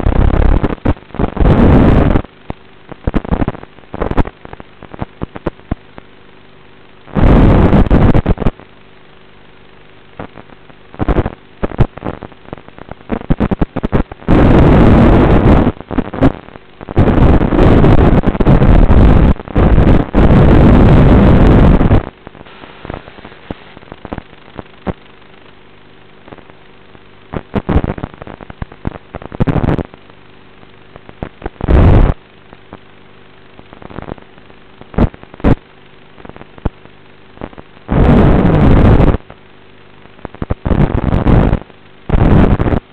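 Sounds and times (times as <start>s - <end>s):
harsh noise surges: 0.0s - 2.3s, 7.1s - 8.6s, 10.2s - 25.2s, 31.5s - 32.2s, 37.9s - 39.2s
steady low hum: 0.0s - 42.9s.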